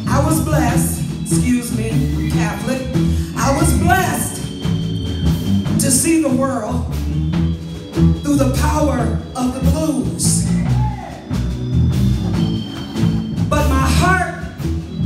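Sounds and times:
bass and drums: 0.0 - 15.0.

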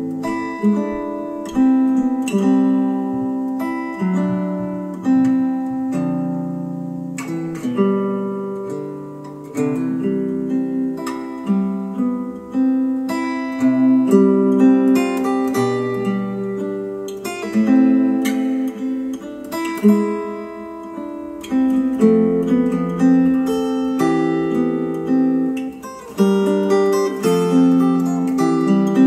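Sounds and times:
acoustic guitar strummed chords: 0.0 - 29.0.

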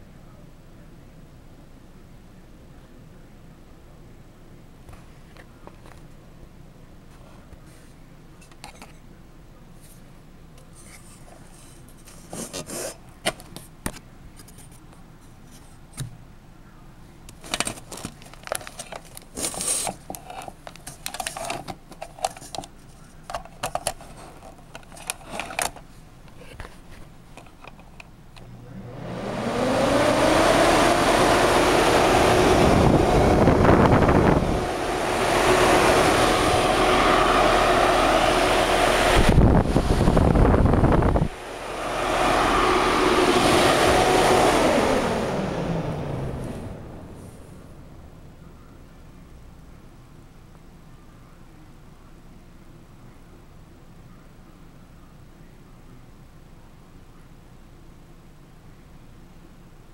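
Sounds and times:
exhaust fan whirring: 0.0 - 50.6
clicks and knocks of cord handling: 17.3 - 25.9.

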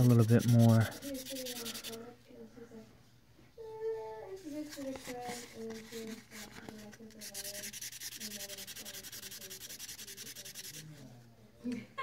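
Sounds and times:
sandpaper rasping: 0.0 - 2.0, 7.1 - 10.9.

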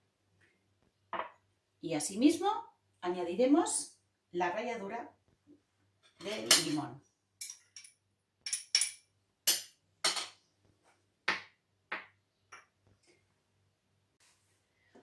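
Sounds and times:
glassware clinking on countertop: 6.0 - 10.4.

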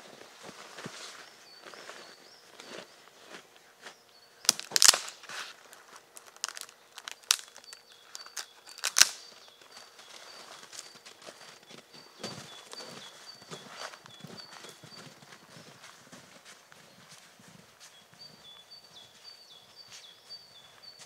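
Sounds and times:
rustling and crinkling of gear: 0.0 - 21.0
sharp clicks and cracks: 4.4 - 9.3
faint high bird chirps: 6.3 - 21.0.

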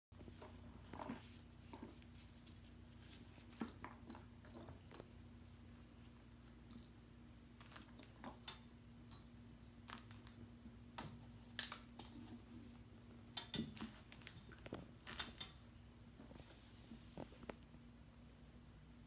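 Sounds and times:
faint steady hum: 0.2 - 19.0.

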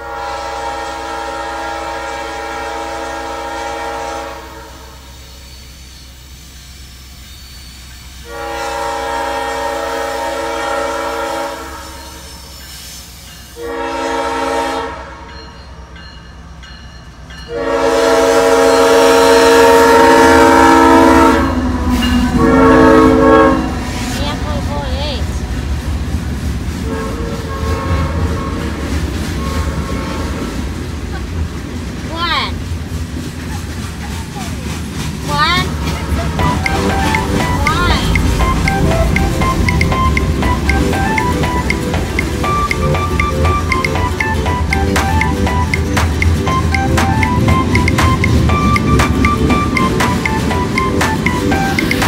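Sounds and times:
locomotive air horn blasts: 0.0 - 5.2, 8.2 - 12.3, 13.6 - 15.3, 17.5 - 24.2, 26.8 - 30.5
rumble of passing train: 0.0 - 52.0.

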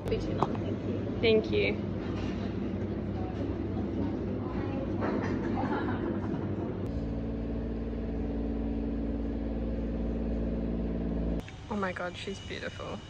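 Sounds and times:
busy cafe background noise: 0.0 - 6.5
vehicle engine running: 0.0 - 11.4.

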